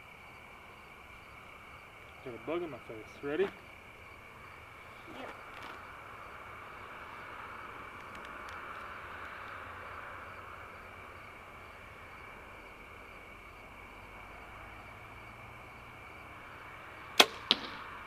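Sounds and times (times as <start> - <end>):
insect chorus drone: 0.0 - 18.0
faint ticks: 8.0 - 9.4.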